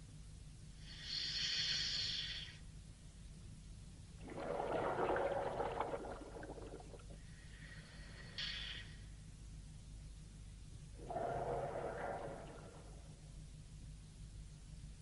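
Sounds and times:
steady low hum: 0.0 - 15.0
regulator hissing inhale: 0.8 - 2.6, 7.2 - 9.1
bubbling exhale: 4.2 - 8.9, 11.0 - 13.4.

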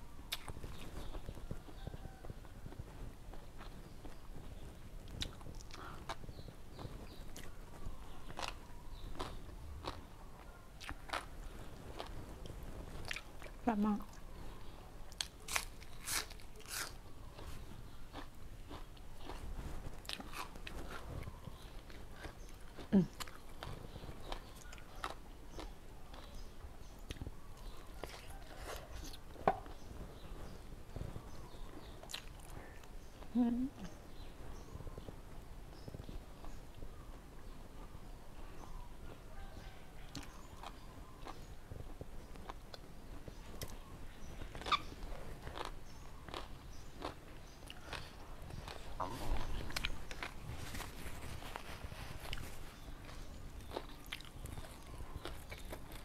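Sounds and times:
wet crunchy chewing: 0.3 - 2.2, 5.0 - 14.2, 15.1 - 29.8, 31.8 - 32.6, 40.1 - 41.5, 43.6 - 56.0.

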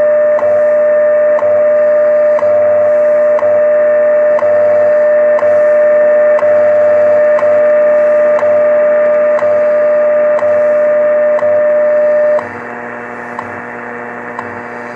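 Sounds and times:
steady radio tone: 0.0 - 12.5
radio static and hum: 0.0 - 14.9
time signal ticks: 0.2 - 0.6, 1.2 - 12.5.

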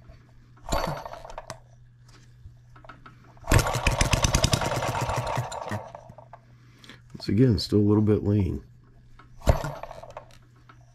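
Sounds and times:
model engine firing and running: 3.5 - 6.0.

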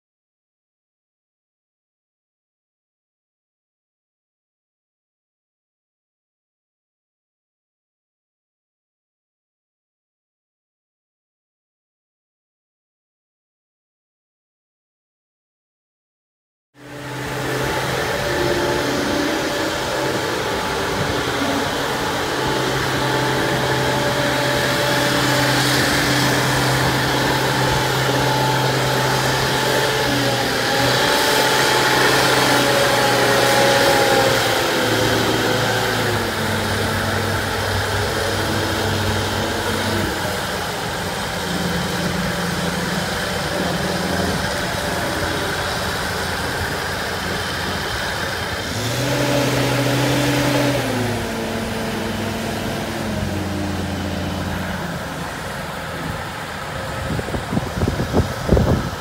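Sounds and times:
travel lift engine running: 16.8 - 59.0.

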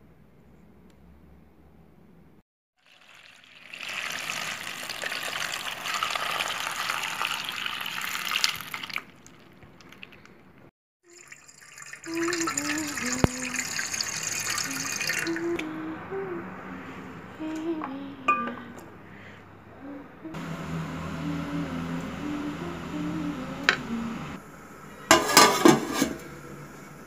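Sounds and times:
tap water running into metal pot: 2.8 - 10.1, 11.1 - 15.4.

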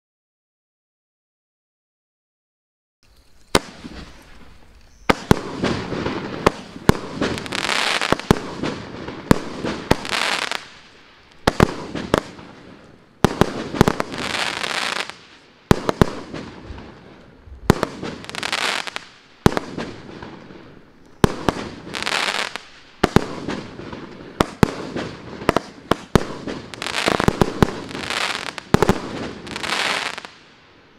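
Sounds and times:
fireworks burst hiss: 3.1 - 30.6
fireworks bangs: 3.5 - 30.6.

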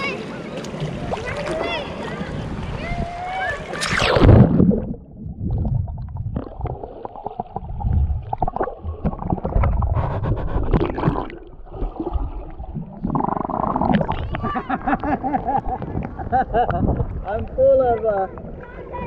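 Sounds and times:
underwater gurgling and rumbling: 3.6 - 17.6.

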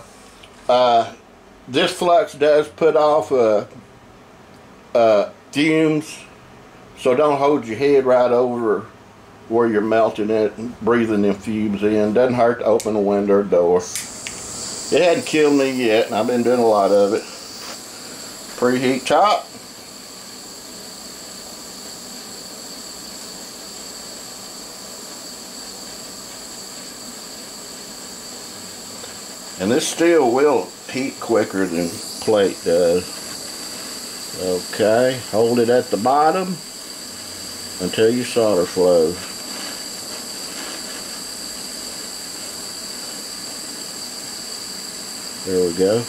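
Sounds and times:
gas torch hissing: 0.0 - 3.1, 13.7 - 46.0
thin high whine: 0.0 - 3.7, 9.5 - 46.0.

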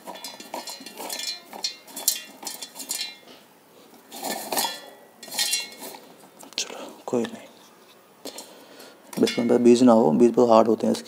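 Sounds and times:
hard pieces rattling in steel jar: 0.0 - 3.3, 4.1 - 6.1.

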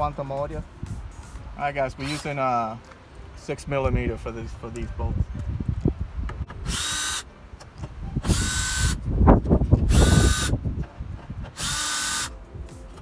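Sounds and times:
cordless drill whine: 6.6 - 7.2, 8.2 - 9.0, 9.9 - 10.5, 11.6 - 12.4.

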